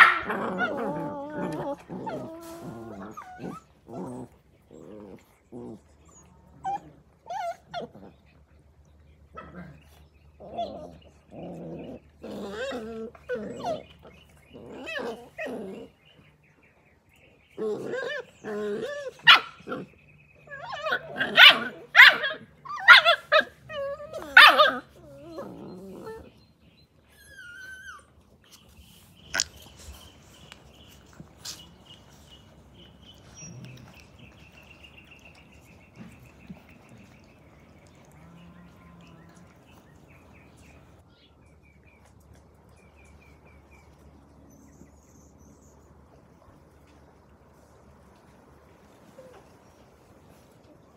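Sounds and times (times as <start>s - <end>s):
puppy barking: 0.0s - 0.3s, 20.8s - 23.5s, 24.3s - 24.8s
puppies yipping and whining: 0.0s - 8.4s, 9.4s - 16.4s, 17.3s - 41.1s
puppies growling: 0.0s - 16.4s, 17.2s - 41.1s.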